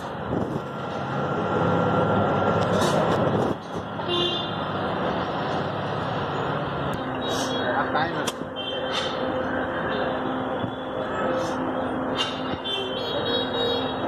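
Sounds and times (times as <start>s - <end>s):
busy street traffic: 0.0s - 14.0s
car horn toot: 12.6s - 14.0s.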